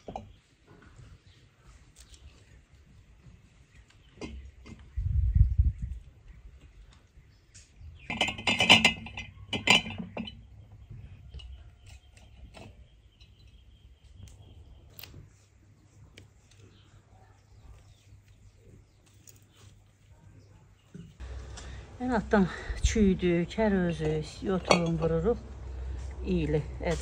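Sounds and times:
glass jars clinking: 0:08.1 - 0:10.5, 0:24.6 - 0:25.3.

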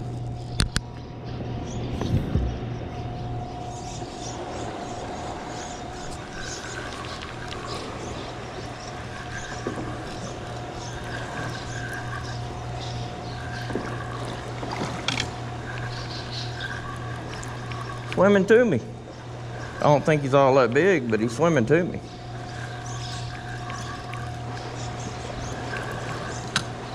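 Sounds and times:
steady low hum: 0:00.0 - 0:26.9
fishing reel cranking: 0:04.8 - 0:18.6, 0:19.5 - 0:26.9.

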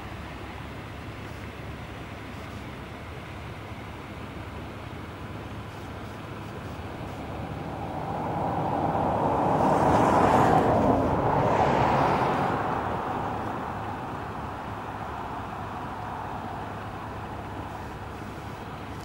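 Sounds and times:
vehicle passing by: 0:06.6 - 0:18.4.

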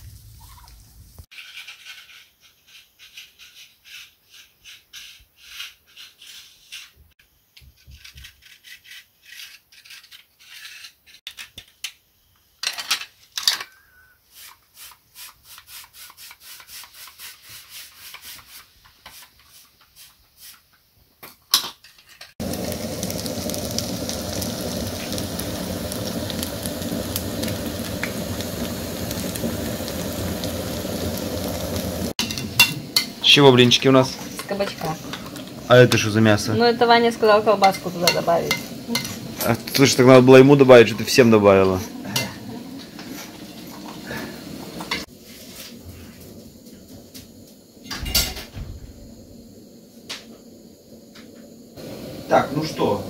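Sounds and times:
steady rain-like hiss: 0:00.0 - 0:01.3, 0:22.4 - 0:53.0.

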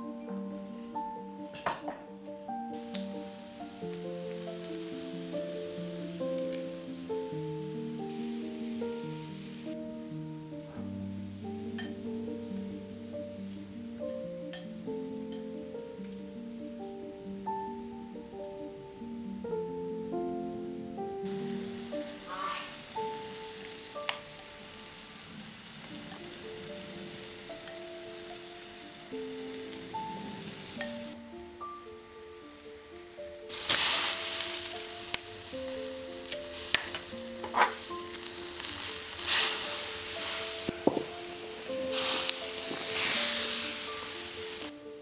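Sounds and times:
gentle background music: 0:00.0 - 0:45.0
soup boiling and hissing: 0:02.7 - 0:10.0, 0:21.2 - 0:45.0
meat patties sizzling in oil: 0:02.8 - 0:09.8, 0:21.3 - 0:31.2, 0:33.5 - 0:44.7.

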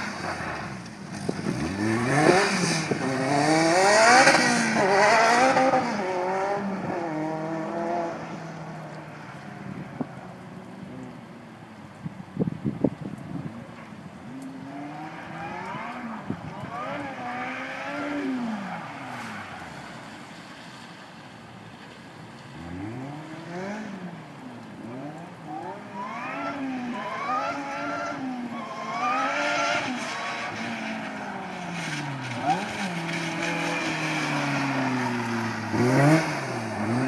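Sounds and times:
car engine revving: 0:00.0 - 0:08.4, 0:22.6 - 0:24.2, 0:24.8 - 0:37.0.

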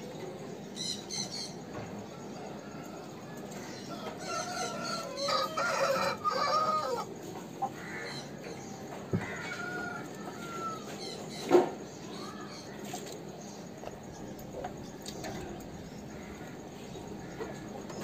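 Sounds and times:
rooster crowing: 0:03.9 - 0:07.1, 0:09.2 - 0:11.0.

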